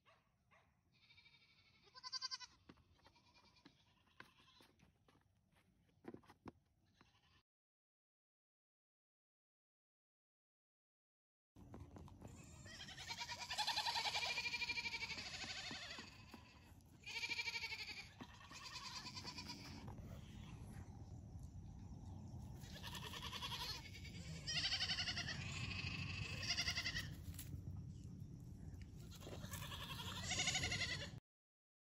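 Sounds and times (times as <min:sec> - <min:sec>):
goat kids bleating: 0:01.0 - 0:04.8, 0:06.9 - 0:07.4, 0:12.2 - 0:20.6, 0:22.6 - 0:27.2, 0:29.0 - 0:31.2.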